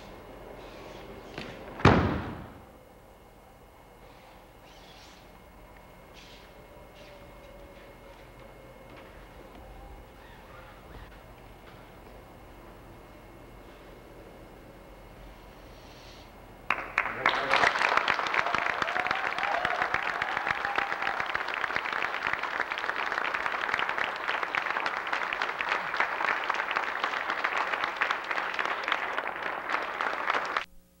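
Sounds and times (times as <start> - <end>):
audience applauding: 16.7 - 30.7.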